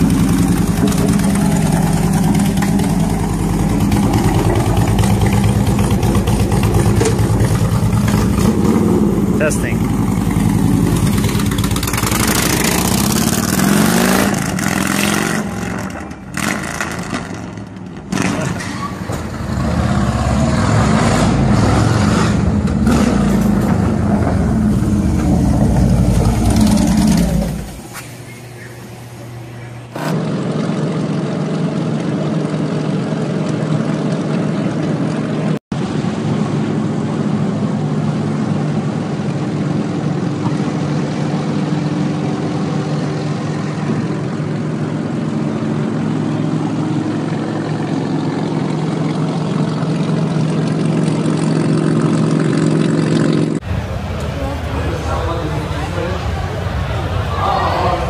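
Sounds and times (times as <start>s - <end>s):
motorcycle engine revving: 0.0s - 34.0s, 45.1s - 54.0s
motorcycle engine drone at speed: 0.0s - 58.0s.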